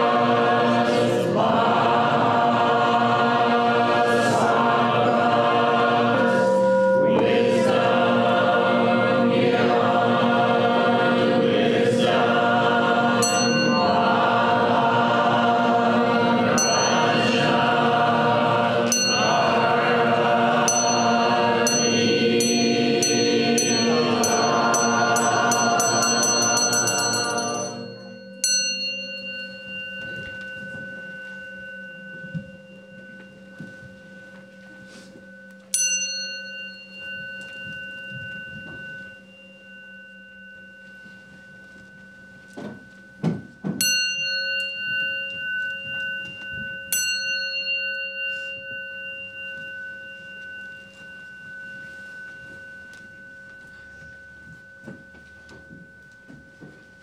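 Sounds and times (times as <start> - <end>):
bowl bell ringing: 0.0 - 1.5, 2.2 - 57.0.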